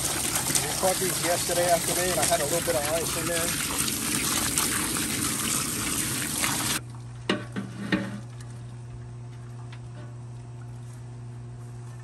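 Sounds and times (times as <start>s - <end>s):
hose water spraying: 0.0s - 6.8s
steady low hum: 0.0s - 12.0s.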